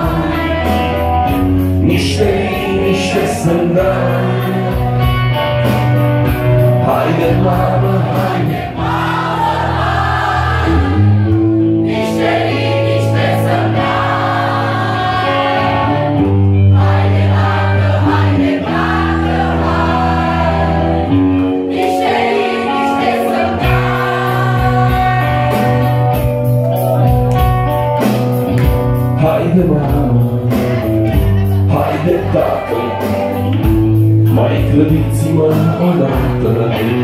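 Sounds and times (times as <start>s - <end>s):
crowd singing in chorus: 0.0s - 5.4s, 6.7s - 26.4s
live band with electric guitar: 0.0s - 37.0s.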